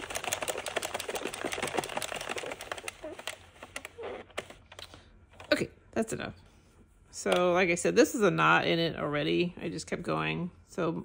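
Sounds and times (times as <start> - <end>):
knitting machine clatter: 0.0 - 4.8.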